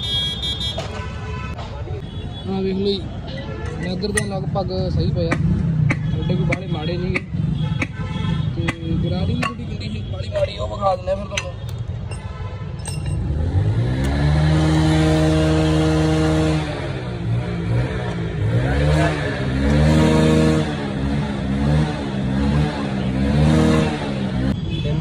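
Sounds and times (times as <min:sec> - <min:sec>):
motorcycle engine revving: 0:13.1 - 0:24.6.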